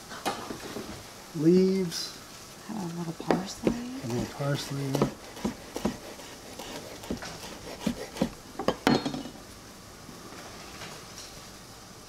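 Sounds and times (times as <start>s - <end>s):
dishes clinking and knocking: 8.2s - 9.4s.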